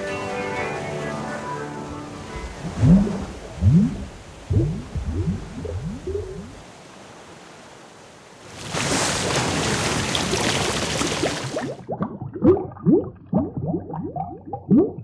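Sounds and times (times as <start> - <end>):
rush of bubbling water: 2.3 - 6.9, 8.4 - 15.0.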